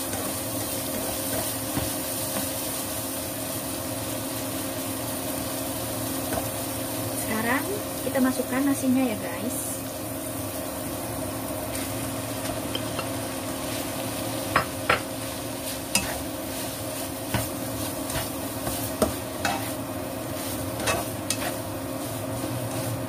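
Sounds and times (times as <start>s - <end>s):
rice sizzling in a wok: 0.0s - 23.0s
spatula stirring: 14.9s - 23.0s.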